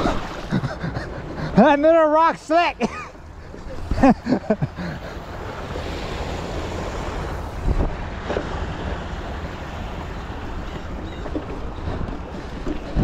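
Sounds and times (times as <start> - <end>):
wind buffeting microphone: 3.3 - 13.0.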